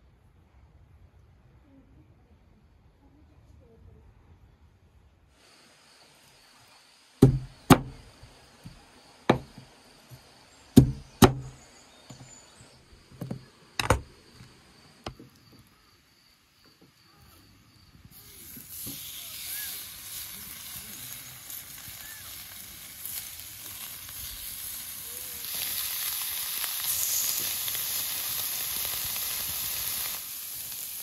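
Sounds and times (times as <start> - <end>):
knife chopping on wooden board: 7.2 - 8.0, 9.3 - 9.6, 10.8 - 11.5
steak sizzling in grill pan: 18.1 - 31.0.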